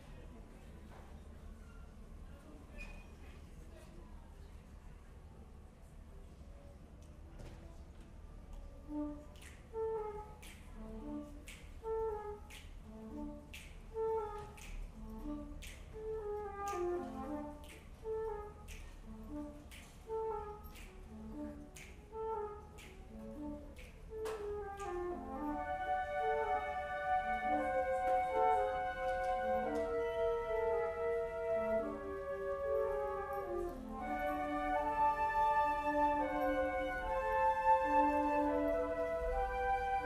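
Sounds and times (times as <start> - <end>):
low flutes playing bass figure: 8.7 - 40.0
higher flutes holding notes: 8.8 - 40.0
sharp clicks keeping a beat: 9.2 - 39.7.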